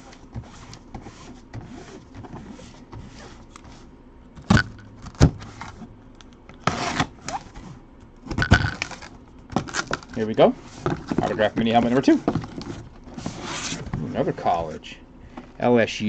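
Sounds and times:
cardboard box rubbing: 10.6s - 14.3s.

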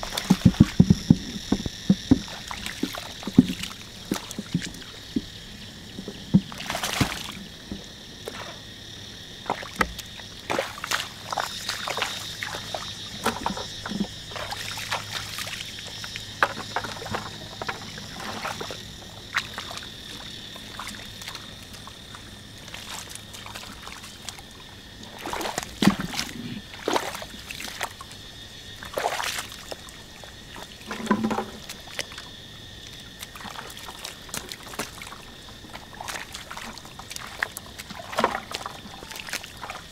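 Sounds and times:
splashing in shallow water and mud: 0.0s - 39.9s.

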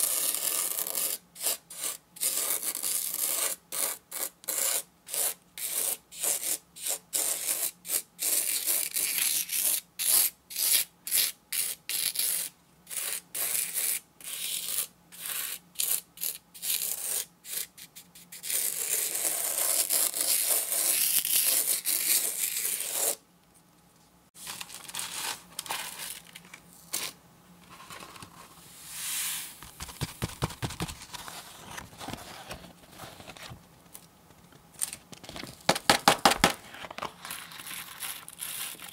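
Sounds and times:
spoon scraping sand: 28.7s - 29.6s.

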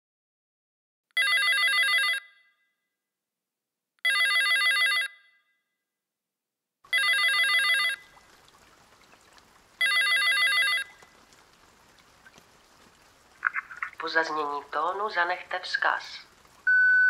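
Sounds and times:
electronic telephone ringing: 1.2s - 2.4s, 4.0s - 5.4s, 6.9s - 8.1s, 9.8s - 11.0s.

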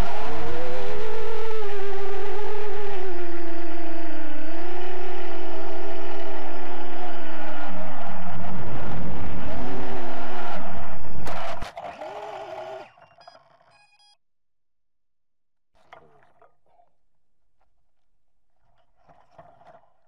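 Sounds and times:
drone motors whining: 0.0s - 14.1s.

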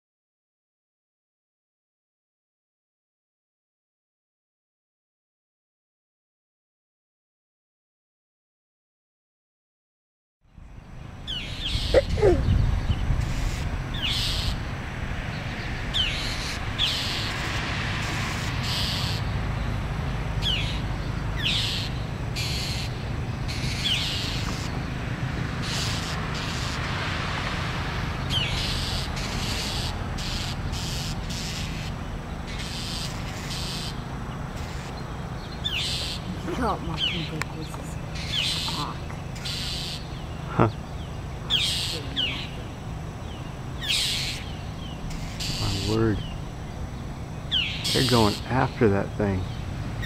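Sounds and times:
steady low rumble: 10.5s - 32.6s
birds harsh scolding calls: 10.8s - 50.0s.

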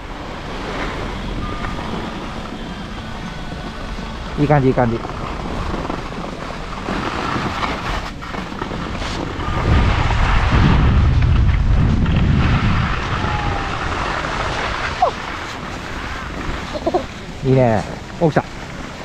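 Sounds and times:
wind noise on microphone: 0.0s - 19.0s
skis sliding on snow: 4.4s - 19.0s.

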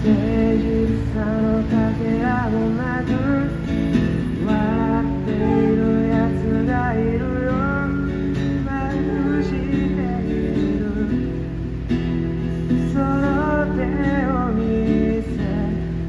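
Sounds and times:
acoustic guitar strumming: 0.0s - 16.0s
person singing: 4.4s - 11.3s.

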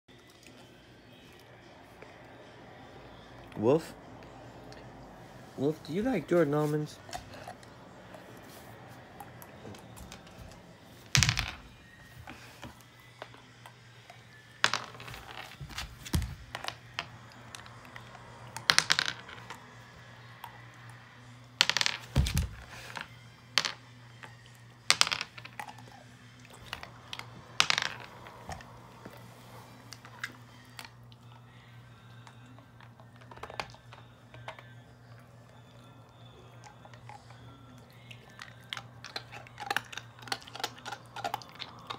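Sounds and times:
wolf crunching hard candy: 36.6s - 41.9s.

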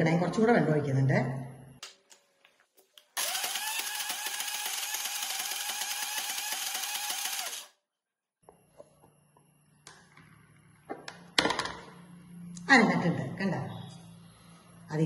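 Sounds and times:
mixer grinder running: 3.2s - 7.8s.

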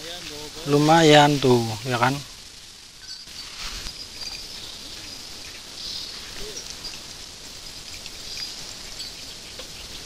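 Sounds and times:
steady outdoor hiss: 0.0s - 10.0s
faint bird chirps: 3.0s - 10.0s.

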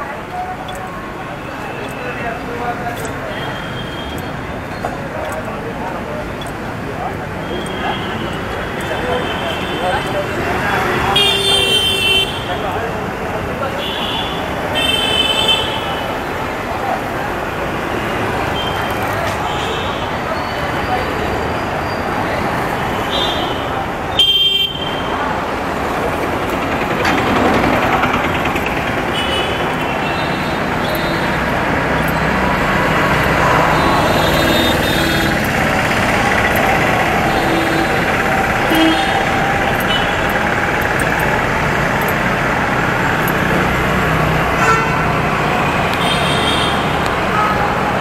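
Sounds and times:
motorbikes and cars passing: 0.0s - 24.2s, 24.9s - 48.0s
vehicle horn toots: 37.3s - 40.3s, 44.6s - 45.2s.

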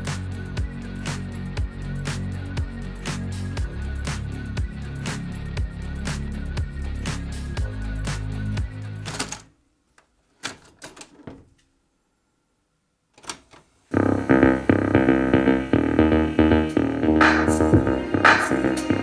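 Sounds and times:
loud music from boombox: 0.0s - 9.2s, 13.9s - 19.0s.

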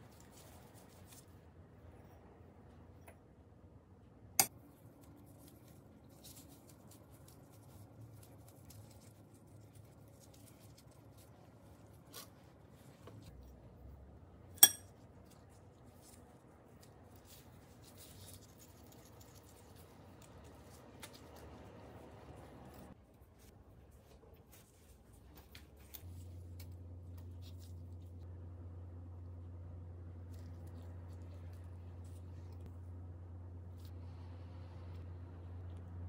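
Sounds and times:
gloved hands rolling dough: 0.0s - 3.2s, 4.5s - 36.0s
metal spoon clinking ceramic bowl: 14.6s - 14.9s.

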